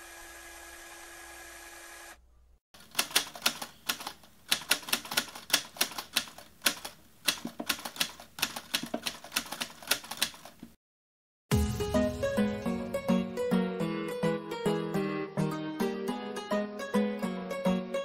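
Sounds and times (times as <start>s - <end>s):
manual typewriter keys clacking: 2.8s - 10.7s.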